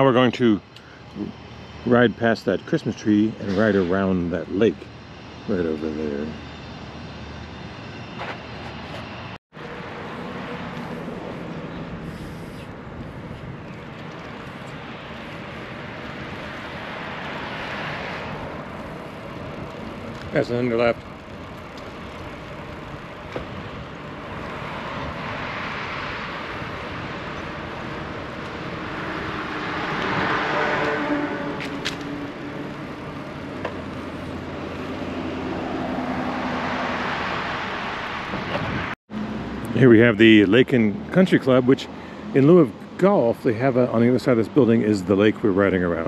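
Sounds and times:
passing traffic: 0.0s - 46.0s
rushing noise while cycling: 0.0s - 46.0s.

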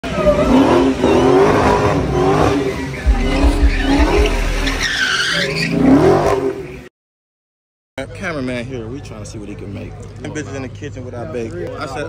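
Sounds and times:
car engine revving: 0.0s - 6.8s
tires squealing: 0.0s - 6.8s.

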